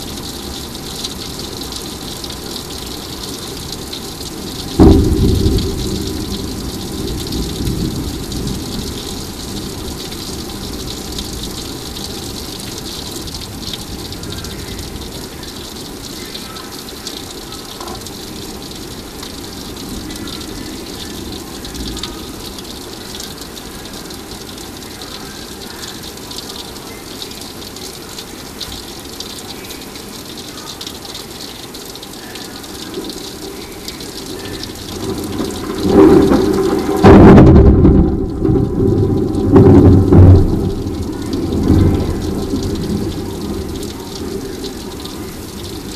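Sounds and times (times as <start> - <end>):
thunder rumble: 0.0 - 15.3, 33.0 - 45.9
heavy rain: 0.0 - 45.9
loud thunder clap: 4.7 - 11.5, 34.7 - 45.9.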